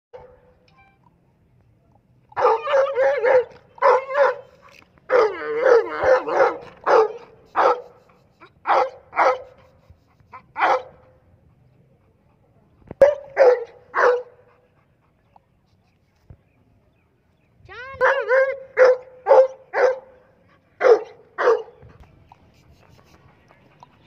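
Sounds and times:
dog barking: 0:02.4 - 0:04.4, 0:05.1 - 0:07.9, 0:08.7 - 0:09.5, 0:10.6 - 0:10.9, 0:13.0 - 0:14.4, 0:18.0 - 0:20.1, 0:20.8 - 0:21.8.

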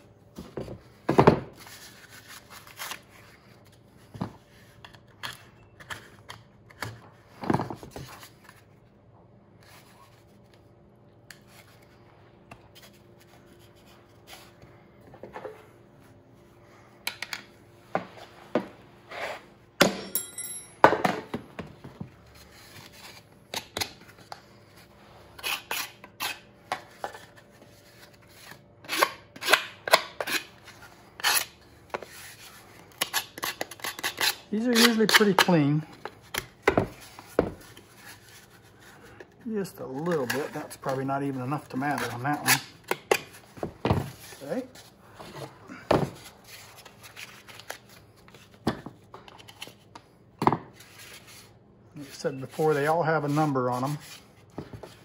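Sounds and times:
scraping and cutting foam: 0:28.2 - 0:35.7, 0:39.7 - 0:43.3.

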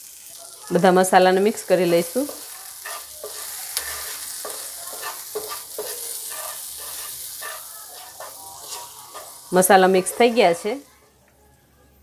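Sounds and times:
oil sizzling: 0:00.0 - 0:11.0
wooden spatula scraping pan: 0:01.5 - 0:10.9.

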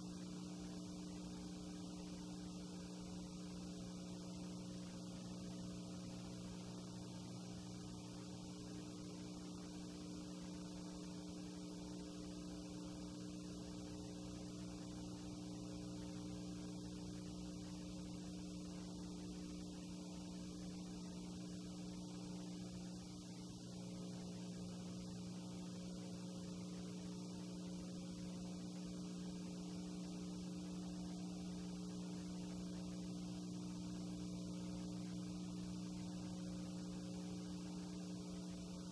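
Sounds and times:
electrical mains hum: 0:00.0 - 0:38.9.

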